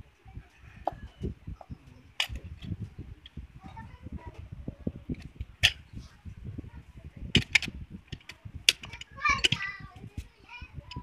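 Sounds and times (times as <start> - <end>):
sharp metallic clicks and knocks: 2.2 - 3.4, 5.1 - 5.8, 7.3 - 9.7.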